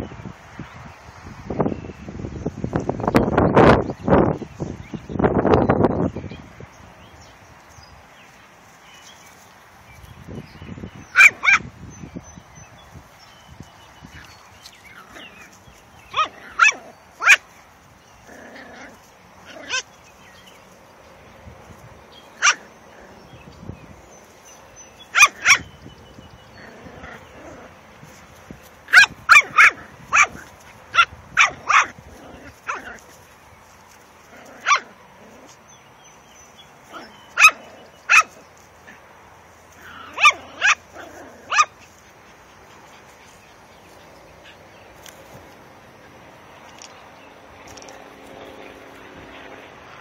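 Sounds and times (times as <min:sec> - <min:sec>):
dog barking: 0:16.2 - 0:17.4, 0:22.4 - 0:22.7, 0:25.1 - 0:25.6, 0:28.9 - 0:30.4, 0:31.0 - 0:31.9, 0:34.6 - 0:34.9, 0:36.9 - 0:38.3.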